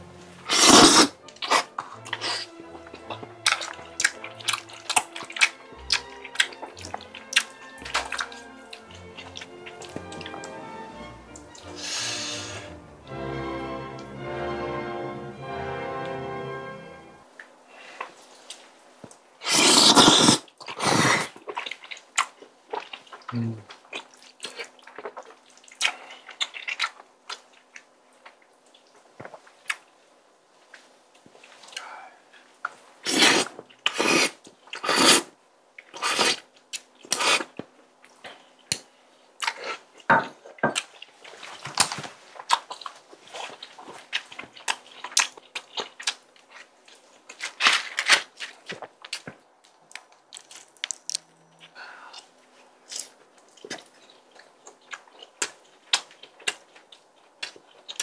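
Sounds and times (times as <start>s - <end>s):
noodles slurping: 0.4s - 12.8s, 19.4s - 22.1s, 33.0s - 37.6s
chewing: 0.5s - 10.6s, 18.0s - 30.0s, 32.6s - 58.0s.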